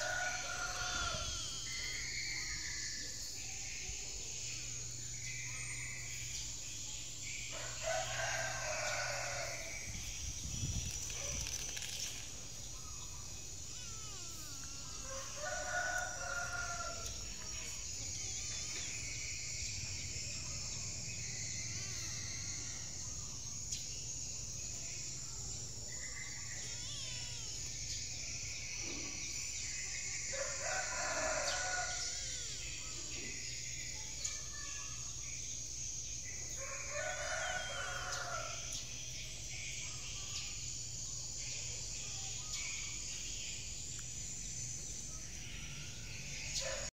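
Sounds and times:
rooster crowing: 0.0 - 1.4, 7.5 - 9.8, 13.7 - 17.2, 30.3 - 32.6, 36.6 - 38.7
high-pitched insect drone: 0.0 - 46.9.

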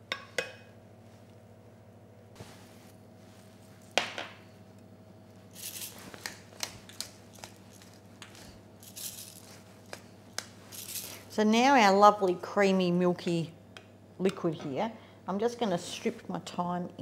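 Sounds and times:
pepper mill grinding: 5.5 - 11.3.

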